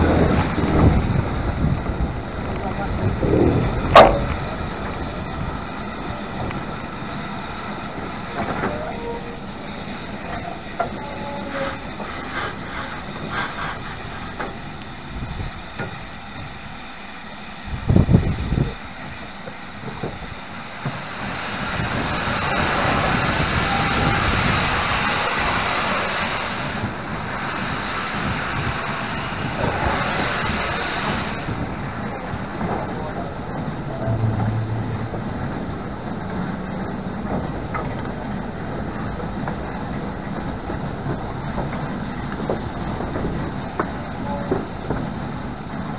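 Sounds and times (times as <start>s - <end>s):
wheels clattering on track: 0.0s - 16.8s, 17.9s - 45.9s
steam hissing: 0.0s - 45.9s
loud low thud: 34.0s - 36.2s.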